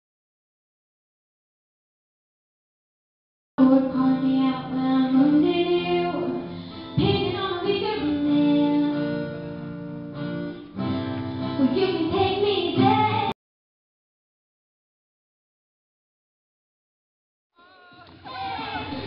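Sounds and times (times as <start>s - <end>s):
woman singing: 3.6s - 9.4s, 11.6s - 13.4s
acoustic guitar: 3.6s - 13.4s.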